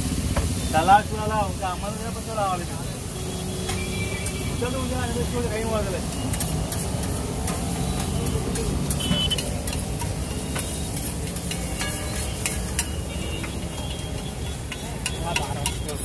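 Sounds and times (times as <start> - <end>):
omelette sizzling: 0.1 - 16.0
spatula scraping a griddle: 5.4 - 16.0.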